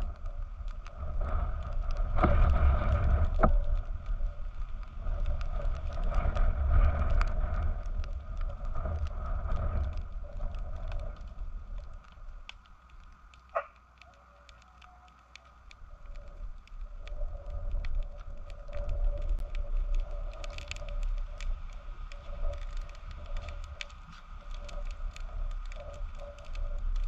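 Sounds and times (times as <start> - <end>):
wind gusting on microphone: 0.0 - 14.4
faint crackling fire: 0.0 - 27.0.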